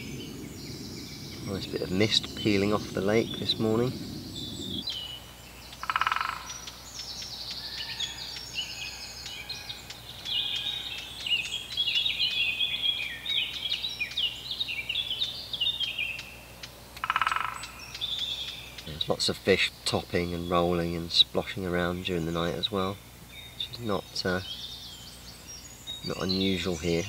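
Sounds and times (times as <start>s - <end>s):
songbirds singing and chirping: 0.0s - 27.0s
bird rattling call: 5.7s - 12.4s, 15.2s - 18.9s.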